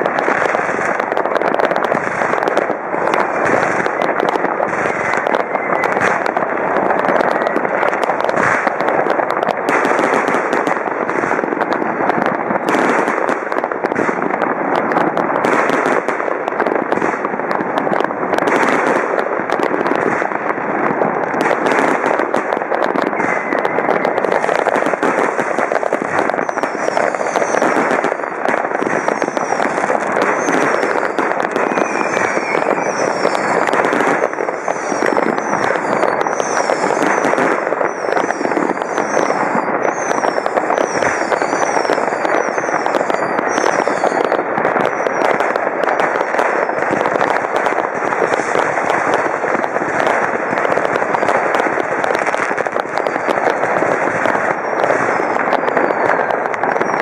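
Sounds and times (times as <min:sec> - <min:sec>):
fireworks crackling and banging: 0:00.0 - 0:57.0
high falling whistles: 0:26.4 - 0:28.3, 0:30.3 - 0:45.2.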